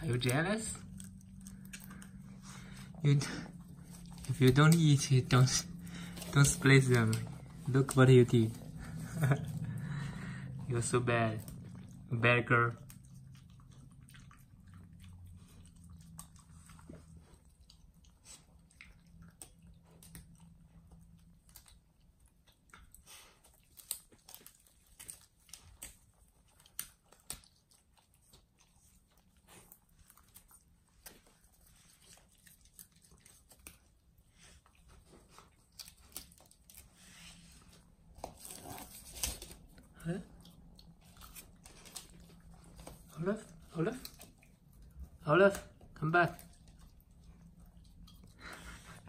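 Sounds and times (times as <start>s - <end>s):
animals chewing leafy greens: 0.0s - 49.0s.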